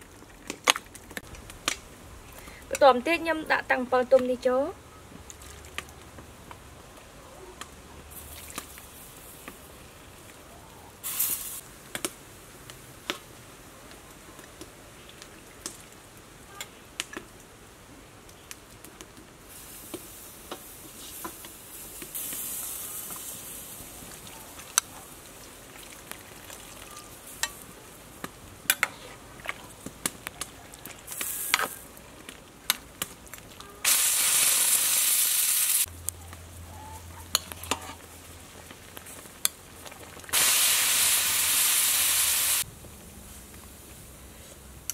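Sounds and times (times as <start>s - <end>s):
soup boiling: 19.5s - 35.9s, 37.3s - 42.7s.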